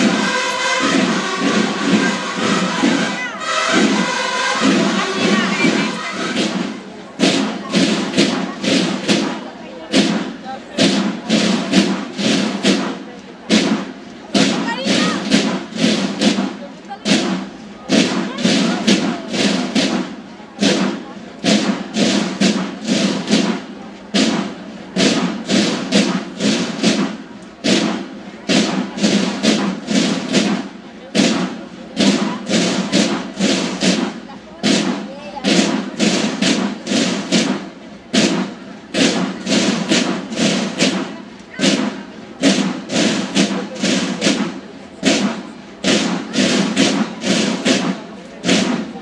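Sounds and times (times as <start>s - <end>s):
field drums in march cadence: 0.0s - 49.0s.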